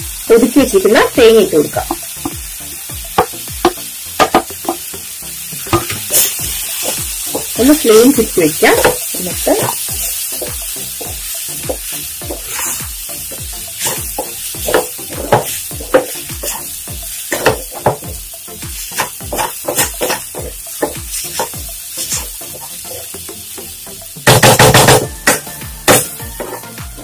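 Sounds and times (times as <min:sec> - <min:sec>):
light sizzle: 0:00.0 - 0:24.3
spatula scraping a pan: 0:05.8 - 0:13.0, 0:13.7 - 0:17.9, 0:18.8 - 0:23.1, 0:26.4 - 0:26.8.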